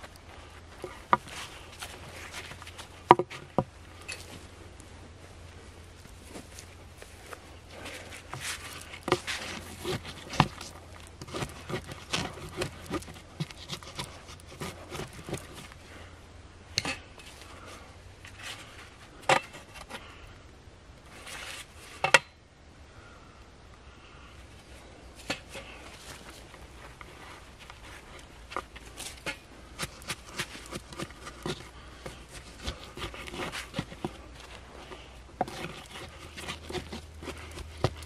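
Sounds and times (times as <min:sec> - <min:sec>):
hands scraping soil: 0:00.0 - 0:04.5, 0:06.1 - 0:16.0, 0:25.2 - 0:38.0.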